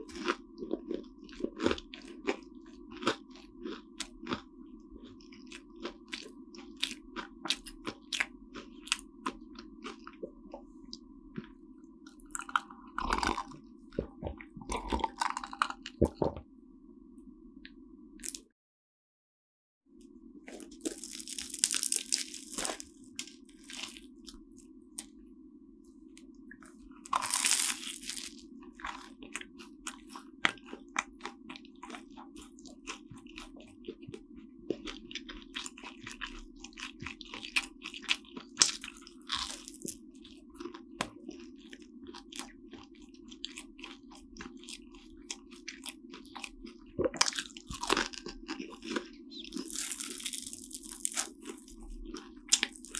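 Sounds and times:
croissant crunching: 0:00.0 - 0:04.4, 0:12.2 - 0:16.4, 0:20.5 - 0:25.2, 0:26.7 - 0:52.9
soft chewing clicks: 0:00.0 - 0:16.4, 0:25.8 - 0:27.2, 0:28.3 - 0:52.9.

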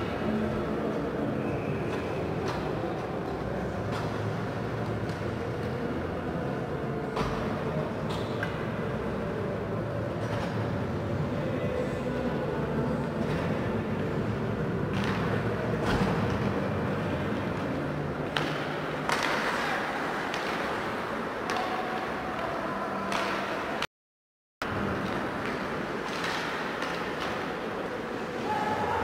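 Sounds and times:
arena background noise: 0:00.0 - 0:23.9, 0:24.6 - 0:29.0
skates sticks and puck on ice: 0:14.9 - 0:23.9, 0:24.7 - 0:29.0.

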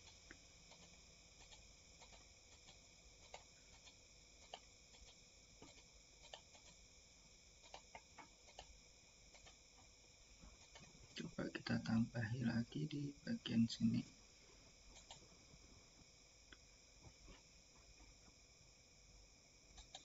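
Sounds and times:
computer mouse clicks: 0:00.0 - 0:06.8, 0:07.6 - 0:09.6, 0:14.9 - 0:15.2, 0:19.7 - 0:20.0.

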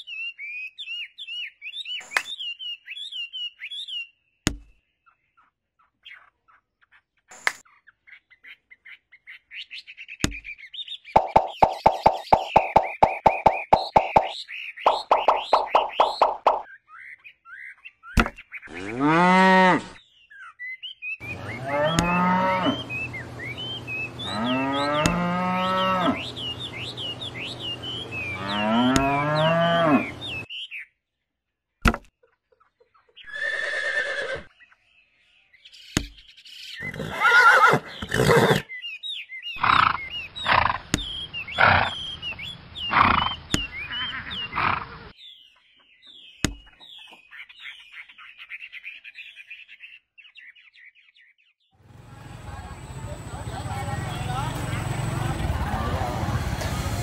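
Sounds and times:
high chirping: 0:11.0 - 0:16.7, 0:21.2 - 0:30.5
cattle mooing: 0:18.7 - 0:19.9, 0:21.3 - 0:23.0, 0:24.2 - 0:26.3, 0:28.2 - 0:30.4.

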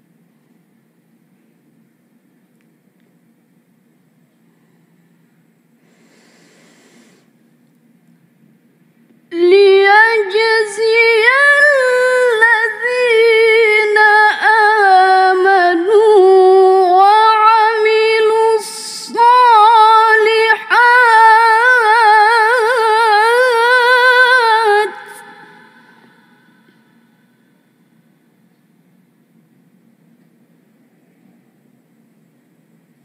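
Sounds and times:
woman reciting melodically: 0:09.3 - 0:26.9.

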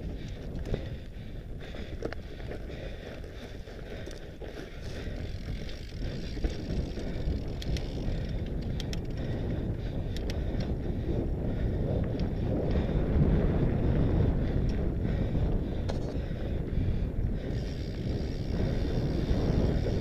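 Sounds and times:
bike tyres rumbling on gravel: 0:00.0 - 0:20.0
wind buffeting microphone: 0:00.0 - 0:20.0
sharp clicks and rattles: 0:03.7 - 0:10.8.

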